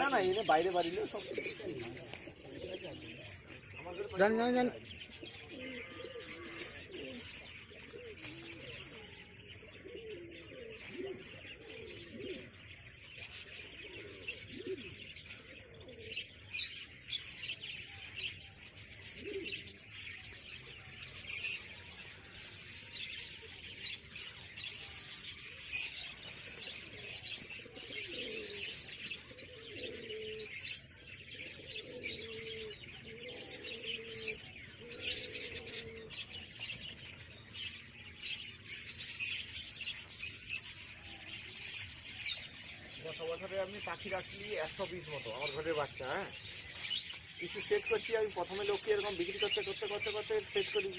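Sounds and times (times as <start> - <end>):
pigeons cooing: 0.0 - 50.9
small birds chirping: 0.0 - 50.9.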